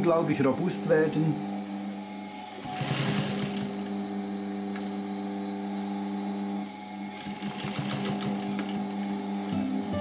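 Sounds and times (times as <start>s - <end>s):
sewing machine humming: 1.5s - 4.3s, 5.6s - 10.0s.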